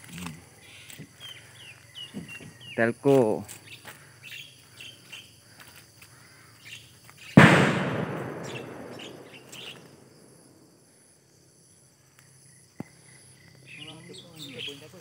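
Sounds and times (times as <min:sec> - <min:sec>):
faint bird chirps: 0:00.1 - 0:07.4, 0:08.3 - 0:10.1, 0:11.7 - 0:15.0
loud bang: 0:07.4 - 0:10.1.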